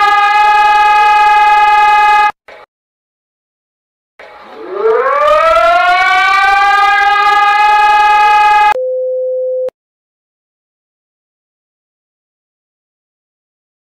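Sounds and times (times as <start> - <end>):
siren wailing: 0.0 - 2.4, 4.4 - 8.8.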